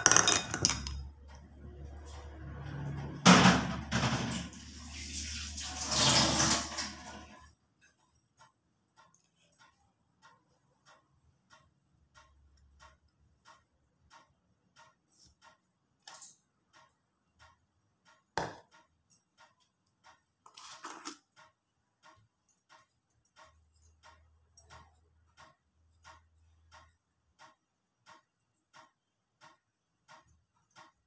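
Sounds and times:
faint ticking: 0:07.6 - 0:20.4, 0:21.3 - 0:31.0.

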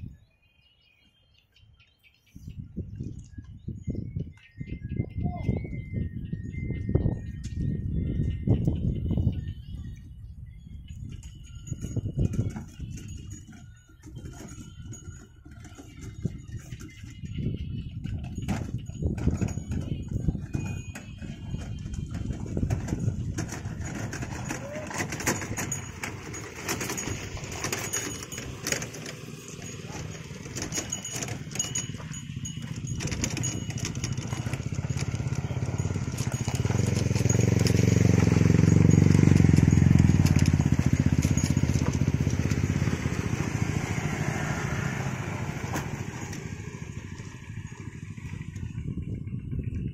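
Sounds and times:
motor scooter engines passing: 0:06.8 - 0:49.9
clicks and rattles: 0:18.0 - 0:43.4.

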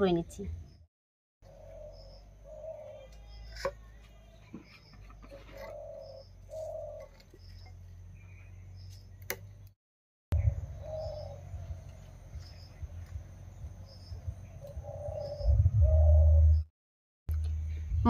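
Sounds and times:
doves cooing: 0:01.4 - 0:08.5, 0:10.4 - 0:12.2, 0:14.3 - 0:16.6
small bird chirping: 0:01.4 - 0:09.7, 0:10.4 - 0:16.7.

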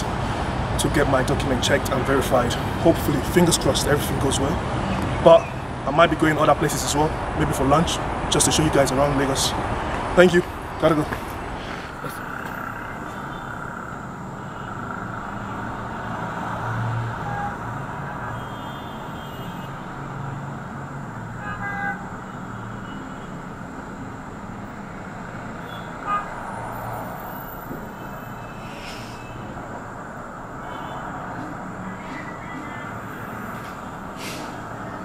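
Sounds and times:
cars passing: 0:00.0 - 0:35.0
car horn toots: 0:17.2 - 0:19.7, 0:21.4 - 0:22.1.

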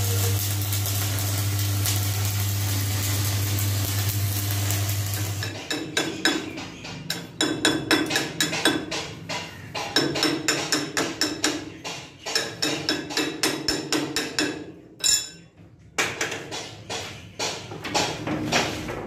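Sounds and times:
hammer tapping on metal: 0:05.4 - 0:15.4.

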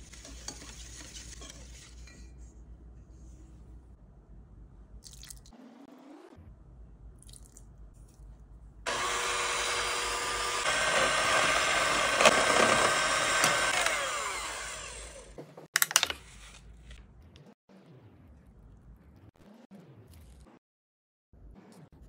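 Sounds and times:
electric hand mixer running: 0:08.9 - 0:15.4.

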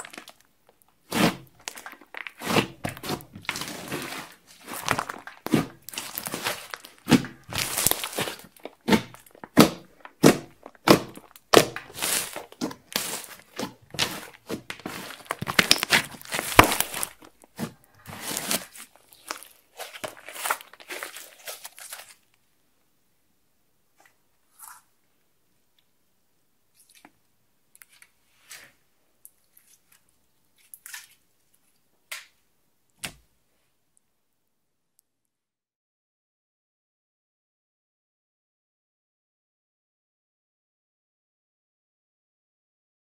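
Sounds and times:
slime popping and squelching: 0:00.0 - 0:22.2.

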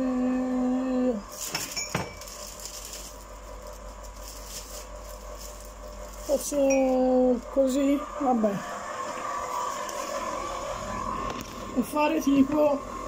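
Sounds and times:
ice cream machine hum: 0:00.0 - 0:13.0
kitchenware clinking: 0:01.4 - 0:02.5.

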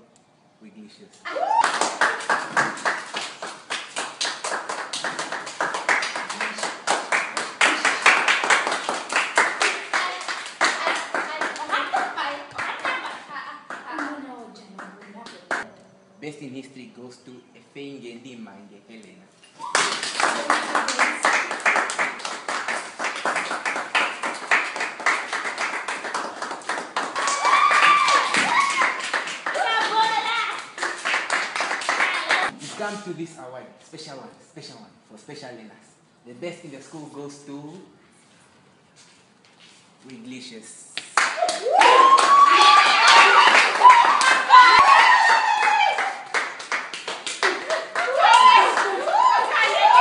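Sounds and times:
people clapping: 0:01.3 - 0:15.7, 0:19.6 - 0:32.6, 0:41.0 - 0:50.0.

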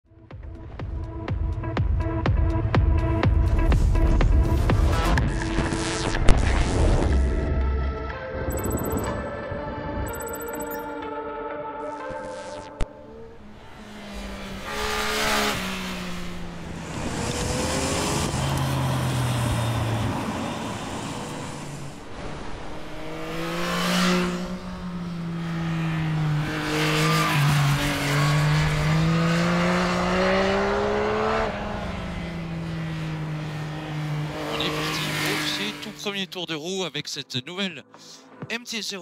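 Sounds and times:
motorcycle engine revving: 0:12.1 - 0:36.0.

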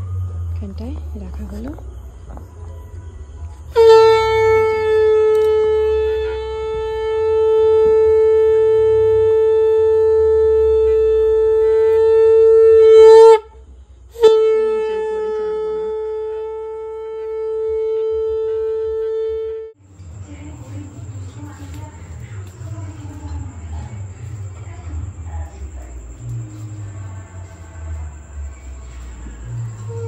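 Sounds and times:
conch shell blasts: 0:03.6 - 0:19.8.

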